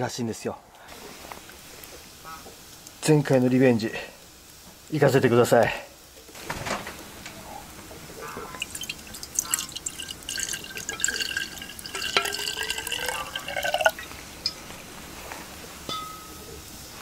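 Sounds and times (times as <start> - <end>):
liquid pouring into a cup: 8.4 - 14.2
ice clicking in a cup: 8.5 - 14.0.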